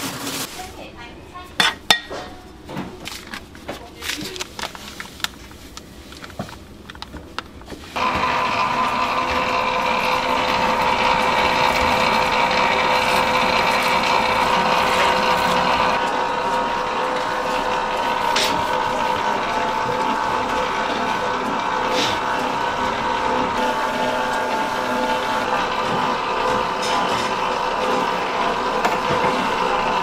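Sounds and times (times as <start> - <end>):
dough mixer humming: 6.4 - 30.0.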